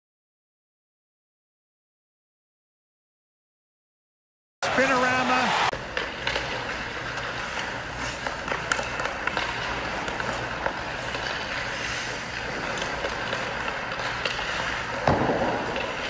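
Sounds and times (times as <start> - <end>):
skates scraping over ice: 4.6 - 16.0
sticks clacking on pucks: 5.8 - 16.0.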